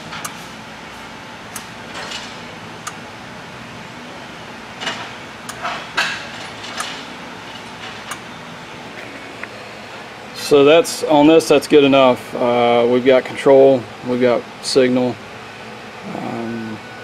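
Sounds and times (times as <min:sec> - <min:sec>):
steady low hum: 0:00.0 - 0:17.0
sharp clicks and knocks: 0:04.8 - 0:08.2.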